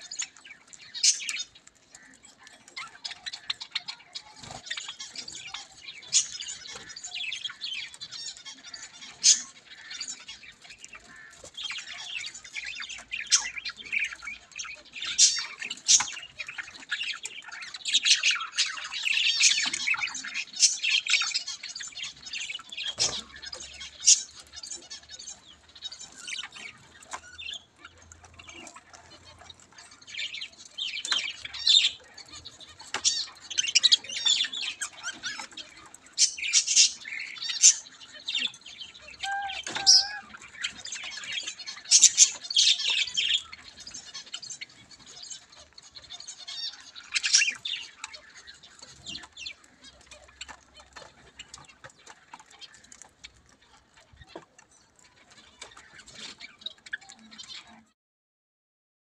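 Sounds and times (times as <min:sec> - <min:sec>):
budgerigars chirping and squawking: 0:00.0 - 0:57.9.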